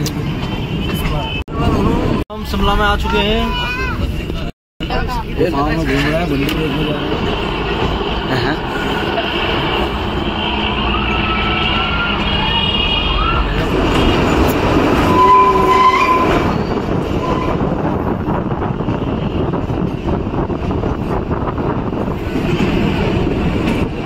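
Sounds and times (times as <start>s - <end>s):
train carriages rumbling and rattling: 0.0s - 24.0s
wheel squeals: 13.2s - 17.6s.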